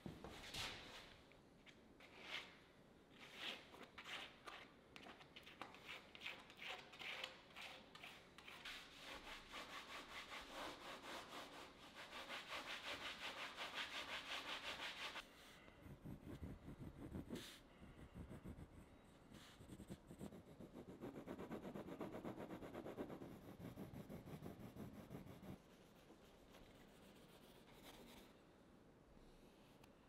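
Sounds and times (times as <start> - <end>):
palette knife scraping canvas: 3.2 - 11.5
hand rubbing canvas: 12.3 - 18.8.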